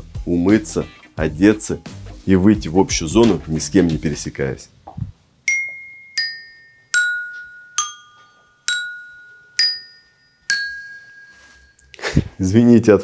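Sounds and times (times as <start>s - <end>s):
toy xylophone notes: 5.5s - 11.9s.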